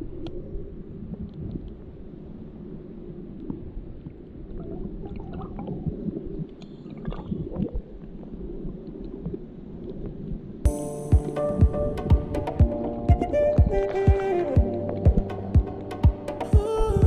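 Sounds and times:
muffled underwater river rumble: 0.0s - 10.6s.

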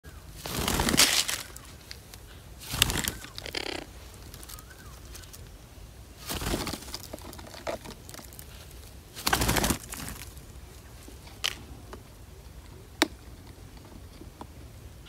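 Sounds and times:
parakeets calling harshly: 0.1s - 5.5s, 8.4s - 11.0s
wings flapping: 0.3s - 12.2s.

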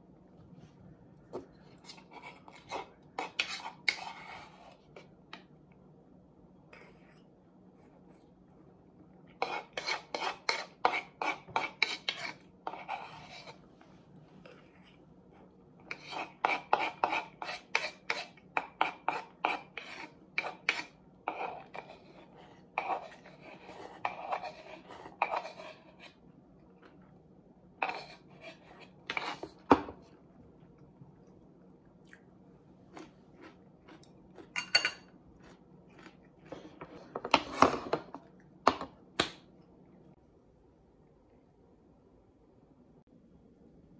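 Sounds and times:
spoon scraping wooden bowl: 1.6s - 5.1s, 9.3s - 13.6s, 15.8s - 26.2s, 27.8s - 29.8s.

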